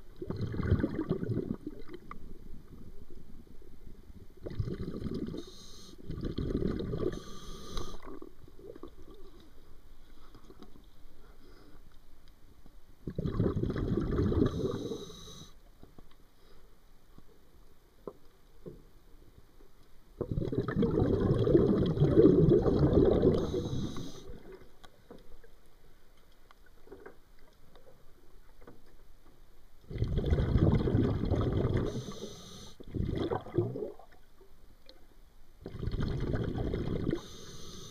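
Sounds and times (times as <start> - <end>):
underwater breath bubbling: 0.2 - 2.0, 4.4 - 9.0, 13.1 - 15.6, 20.2 - 24.6, 29.9 - 34.1, 35.6 - 37.9.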